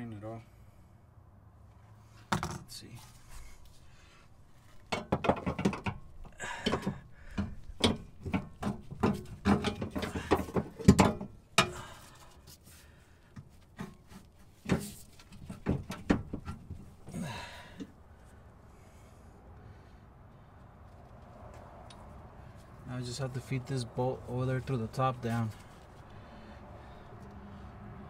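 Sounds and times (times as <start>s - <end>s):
metal knocks and clunks: 4.9s - 11.8s, 13.4s - 17.2s.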